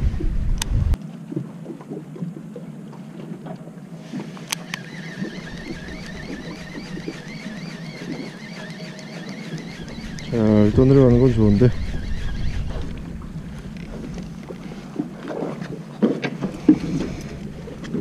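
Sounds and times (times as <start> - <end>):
boat engine humming: 0.2 - 18.0
warbling high whine: 4.5 - 14.6.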